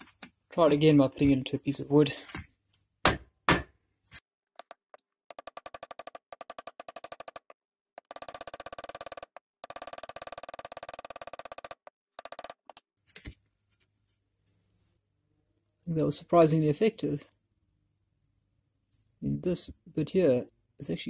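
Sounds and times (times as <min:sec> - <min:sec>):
rapid tool clicking: 0:04.6 - 0:12.8.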